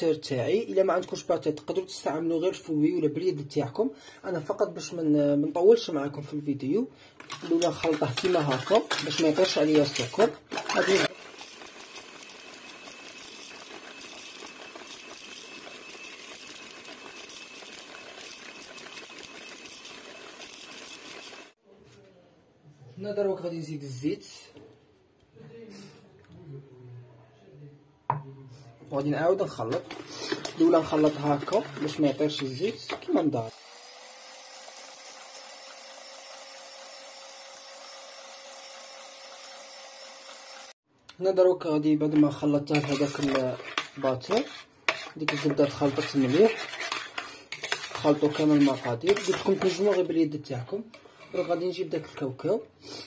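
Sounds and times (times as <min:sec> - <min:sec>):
beaters whisking batter: 0:07.2 - 0:21.6, 0:29.0 - 0:33.5, 0:41.9 - 0:52.5
electric hand mixer running: 0:07.3 - 0:21.6, 0:33.5 - 0:40.8.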